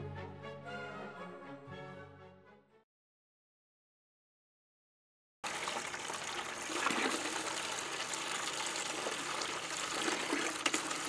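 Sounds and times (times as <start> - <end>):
hose water splashing into bucket: 5.4 - 11.0.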